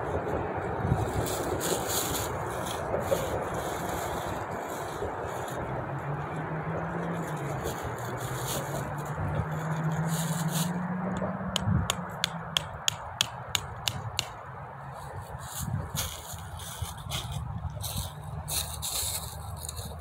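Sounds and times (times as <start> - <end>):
road traffic rush: 0.0 - 20.0
vehicle engine drone: 0.0 - 20.0.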